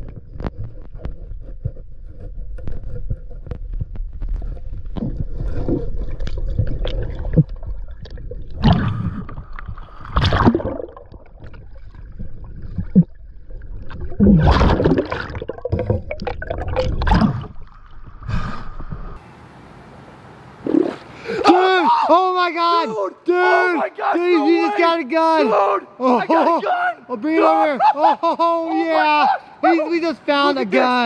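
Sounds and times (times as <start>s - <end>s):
water splashing and sloshing: 0.0s - 21.5s.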